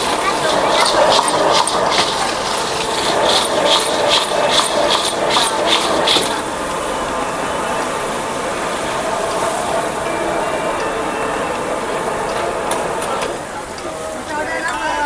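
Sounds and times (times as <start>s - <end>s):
sharp high-pitched strokes: 0.0s - 6.7s
cooking hiss: 0.0s - 15.0s.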